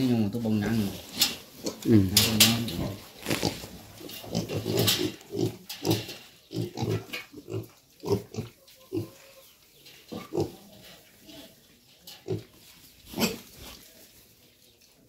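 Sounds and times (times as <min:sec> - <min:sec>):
piglets grunting: 0:00.5 - 0:09.5.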